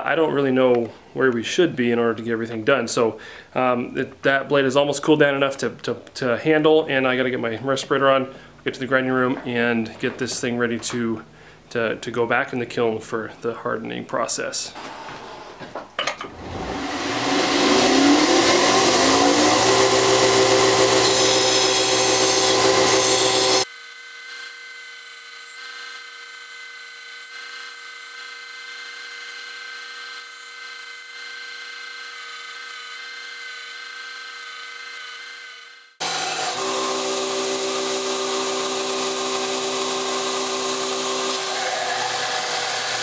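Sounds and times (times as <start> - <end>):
belt grinder whining: 16.1 - 43.0.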